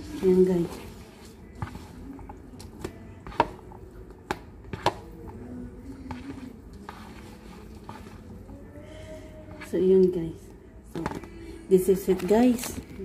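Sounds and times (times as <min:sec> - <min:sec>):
utensil scraping paper cup: 0:06.0 - 0:08.4.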